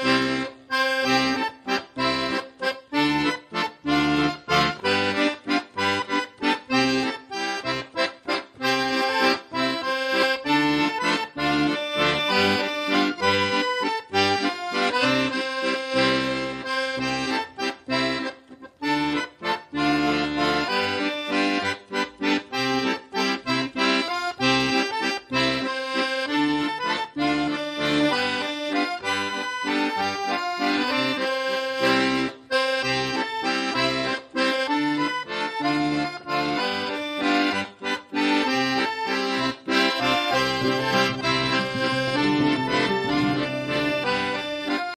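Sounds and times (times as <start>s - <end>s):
instrumental background music: 0.0s - 45.0s.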